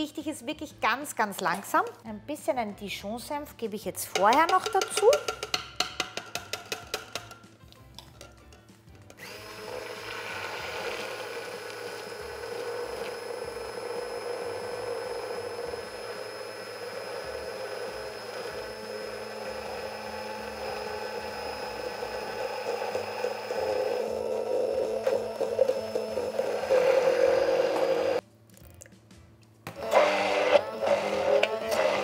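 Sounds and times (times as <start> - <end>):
immersion blender whining: 9.2 - 28.2, 29.7 - 32.0.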